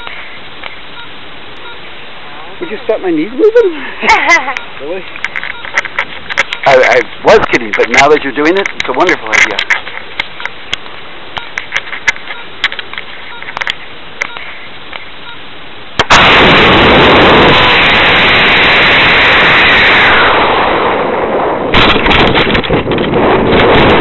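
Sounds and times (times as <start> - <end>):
rocket motors burning: 15.9 - 24.0
wind rushing: 16.0 - 24.0.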